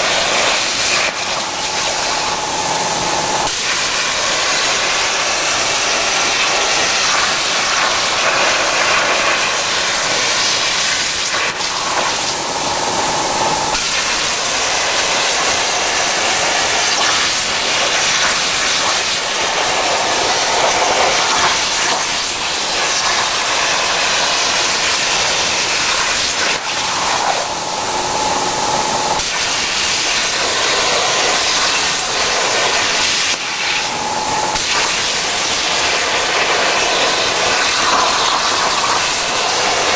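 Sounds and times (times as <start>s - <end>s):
faint whine: 0.0s - 8.4s, 11.0s - 18.2s, 25.9s - 36.5s
plasma torch hissing: 0.0s - 39.9s.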